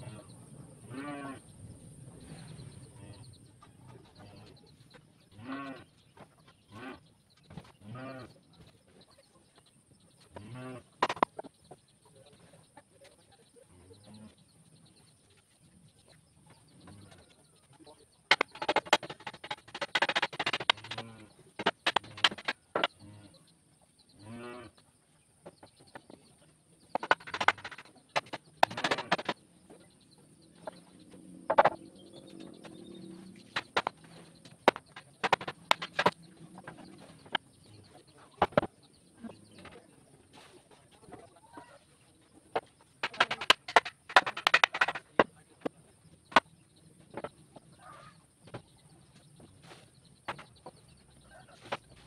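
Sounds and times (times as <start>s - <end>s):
farm animal call: 0.0s - 1.5s, 5.3s - 6.0s, 6.7s - 7.1s, 7.8s - 8.4s, 10.3s - 11.0s, 24.1s - 24.8s, 47.8s - 48.3s
wooden boards knocking: 11.0s - 11.4s, 18.3s - 22.9s, 27.0s - 29.4s, 31.5s - 31.8s, 33.5s - 37.4s, 38.4s - 38.7s, 42.6s - 45.7s.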